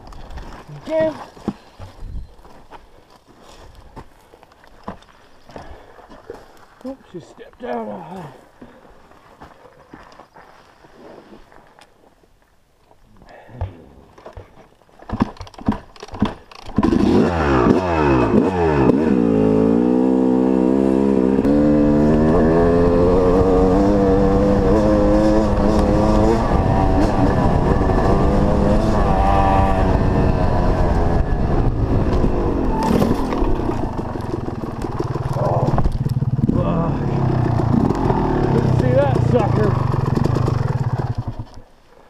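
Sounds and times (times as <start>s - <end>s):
dirt bike engine revving: 16.8s - 41.5s.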